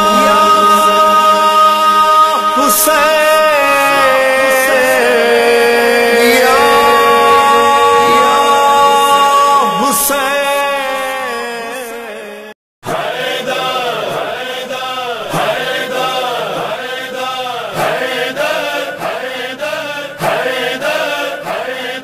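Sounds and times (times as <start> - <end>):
devotional chanting: 0.0 - 22.0.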